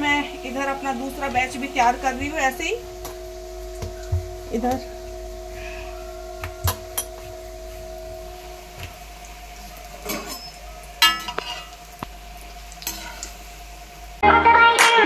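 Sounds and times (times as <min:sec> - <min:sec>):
metal spoon clanking on pot: 0:06.4 - 0:07.3, 0:09.6 - 0:11.8.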